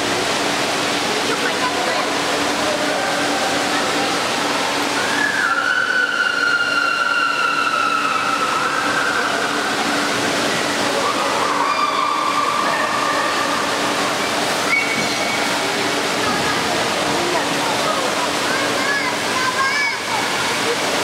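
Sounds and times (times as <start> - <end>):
water rushing in an indoor hall: 0.0 - 21.0
people screaming: 5.0 - 10.0, 10.9 - 13.9.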